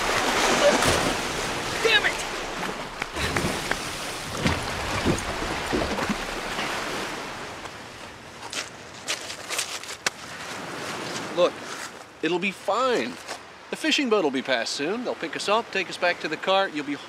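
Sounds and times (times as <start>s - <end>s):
sea water splashing: 0.0s - 8.1s.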